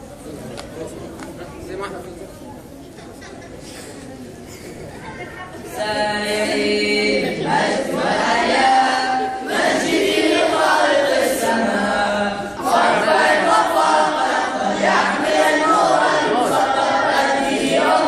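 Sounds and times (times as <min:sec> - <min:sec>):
boys singing unaccompanied: 0:05.7 - 0:18.0.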